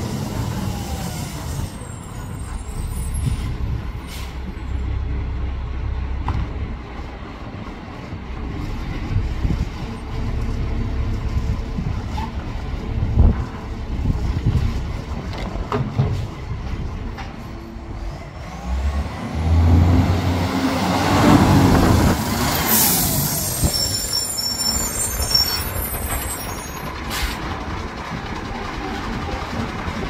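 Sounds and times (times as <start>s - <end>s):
diesel engine idling: 21.1s - 30.0s.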